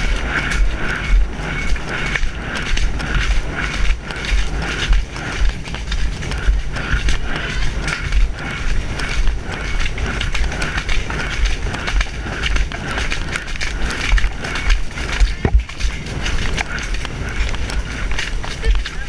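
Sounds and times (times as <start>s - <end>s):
horse hoofbeats on mud: 0.0s - 19.0s
wind rumble on microphone: 0.0s - 19.0s.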